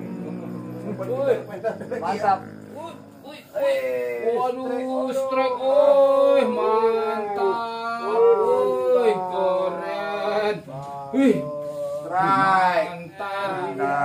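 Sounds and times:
man singing wavering notes: 0.0 - 14.0.

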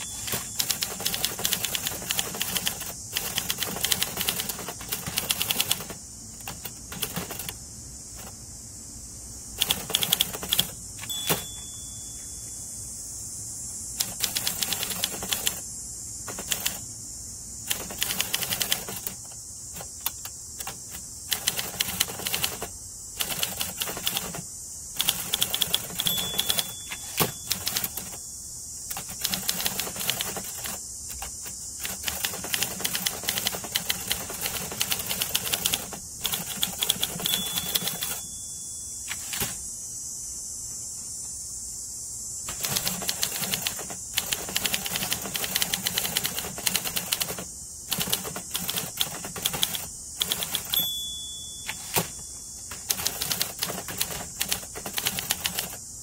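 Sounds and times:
typewriter bell ringing: 0.0 - 2.8, 9.9 - 12.4, 25.3 - 28.2, 36.8 - 39.6, 50.2 - 53.7
typewriter keystrokes: 0.0 - 7.6, 9.6 - 11.6, 14.0 - 15.6, 16.3 - 16.8, 17.7 - 19.2, 19.8 - 24.4, 25.0 - 28.2, 28.9 - 38.3, 42.5 - 55.8.

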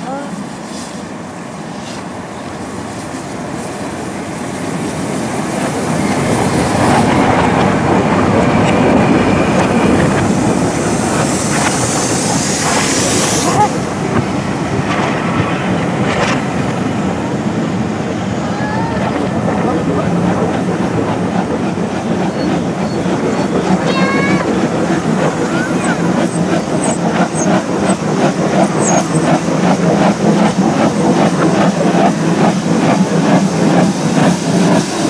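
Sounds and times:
steam locomotive passing: 0.0 - 35.0
train wheels clattering over rail joints: 5.6 - 17.6.

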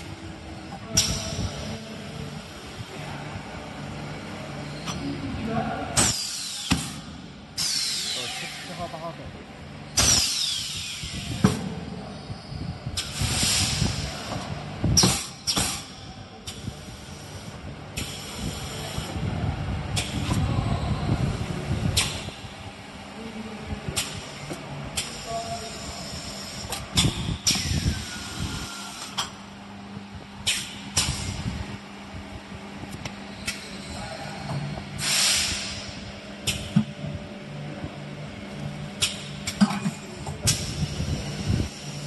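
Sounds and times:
steady machine noise: 0.0 - 42.0
pneumatic cylinder hissing and clunking: 6.0 - 8.6, 10.0 - 11.6, 13.0 - 15.9, 16.5 - 19.2, 24.0 - 29.4, 30.4 - 31.5, 35.0 - 36.8, 39.0 - 41.9.

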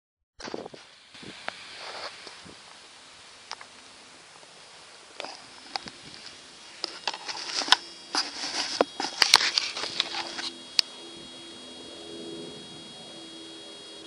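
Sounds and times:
faint steady hum: 0.4 - 14.0
camera handling noise: 5.2 - 10.8.

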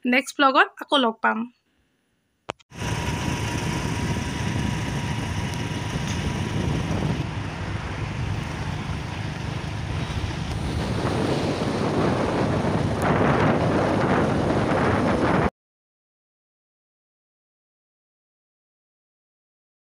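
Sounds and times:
road noise: 2.7 - 15.5
wind buffeting microphone: 2.8 - 15.5.

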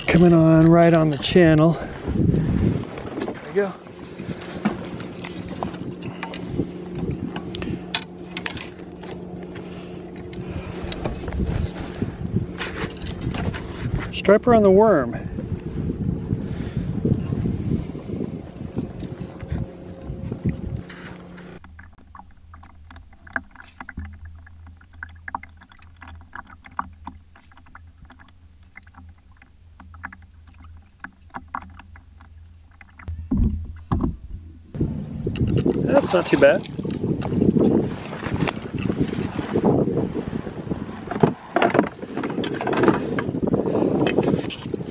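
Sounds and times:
steady low hum: 0.0 - 41.9
clicks and knocks of net and hull: 2.5 - 14.6, 20.3 - 34.6, 35.3 - 44.9
heavy low thumps: 33.1 - 35.9.

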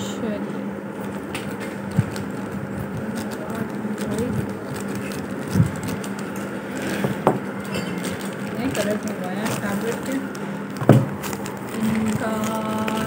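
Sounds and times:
steady low hum: 0.0 - 13.0
plastic mailer bag rustling: 1.0 - 13.0
dull thump: 10.8 - 11.2.

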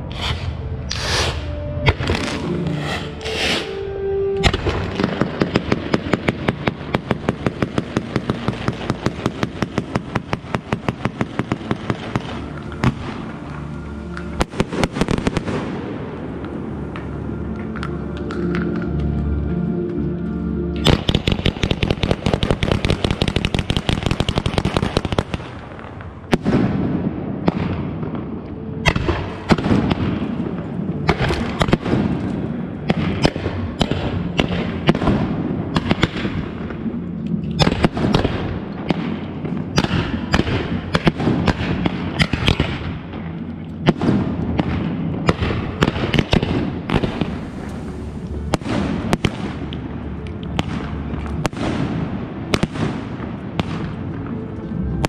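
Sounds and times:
sharp firework reports: 0.0 - 6.6
fireworks crackling bangs: 20.9 - 28.0.

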